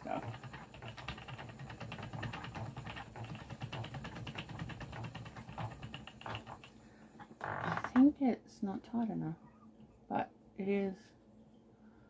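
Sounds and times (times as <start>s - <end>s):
spinning wheel clicking: 0.0s - 6.8s.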